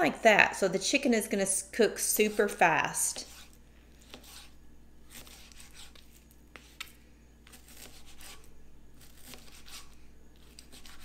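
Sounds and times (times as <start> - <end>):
knife slicing meat: 2.2 - 11.0.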